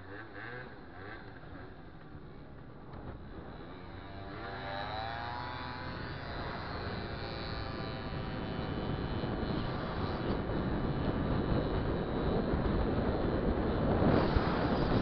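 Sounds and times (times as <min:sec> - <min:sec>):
two-stroke scooter engine: 0:00.0 - 0:15.0
wind on microphone: 0:05.8 - 0:15.0.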